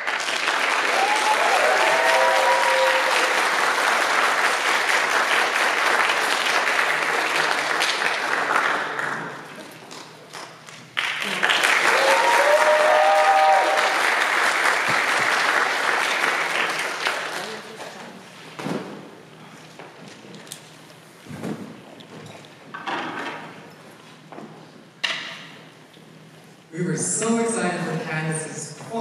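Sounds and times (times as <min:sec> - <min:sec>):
audience applauding: 0:00.0 - 0:18.0
high whoops: 0:00.8 - 0:03.4, 0:11.8 - 0:14.1.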